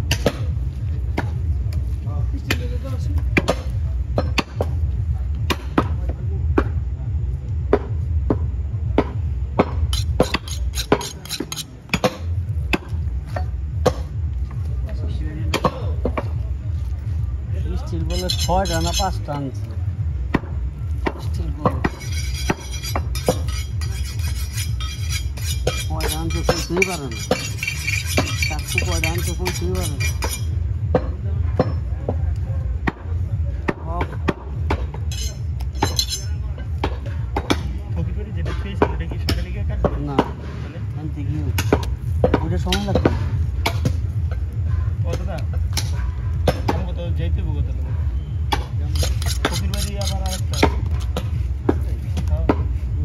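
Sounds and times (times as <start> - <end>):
steady low rumble: 0.0 - 39.8
steady low hum: 0.0 - 39.9
knife chopping on wooden block: 9.6 - 12.2, 49.0 - 51.2.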